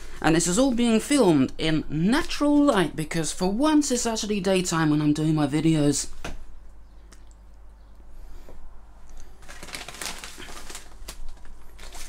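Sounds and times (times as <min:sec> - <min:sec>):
plastic bags and envelope rustling: 0:00.0 - 0:01.1, 0:09.1 - 0:12.0
low steady hum: 0:00.0 - 0:12.0.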